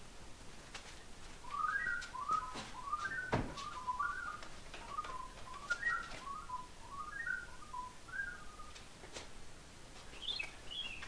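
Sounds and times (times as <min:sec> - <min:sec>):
person whistling a tune: 0:01.5 - 0:08.7.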